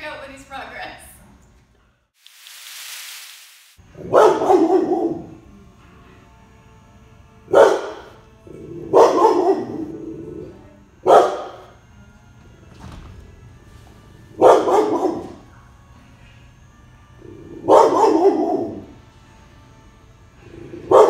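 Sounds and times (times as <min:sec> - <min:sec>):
dog barking loudly: 0:04.0 - 0:05.3, 0:07.5 - 0:08.1, 0:08.9 - 0:10.0, 0:11.1 - 0:11.6, 0:14.4 - 0:15.4, 0:17.6 - 0:18.9.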